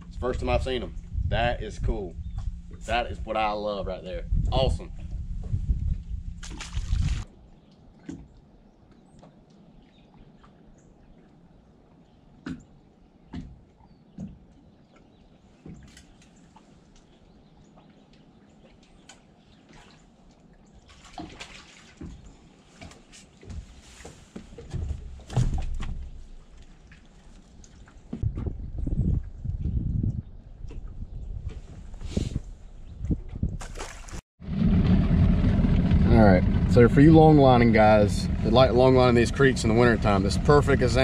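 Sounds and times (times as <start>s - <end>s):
water lapping: 4.9s - 28.3s, 37.2s - 41.0s
fish splashing in water: 6.4s - 7.3s, 20.8s - 23.1s, 33.6s - 34.2s
knocks and clicks from boat and tackle: 7.9s - 9.6s, 12.4s - 19.7s, 21.2s - 31.7s.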